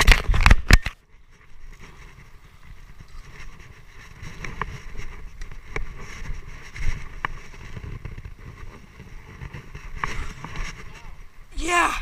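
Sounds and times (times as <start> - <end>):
low rumbling wind: 0.0 - 12.0.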